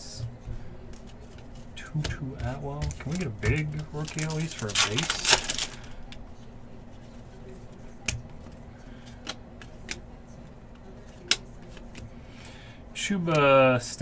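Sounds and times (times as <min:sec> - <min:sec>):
low steady hum: 0:00.0 - 0:14.0
cards clicking and snapping: 0:00.9 - 0:06.2.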